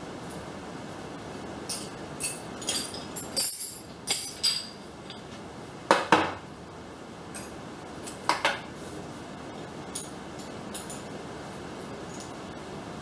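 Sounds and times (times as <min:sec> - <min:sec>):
metal parts clinking: 0:01.7 - 0:04.8.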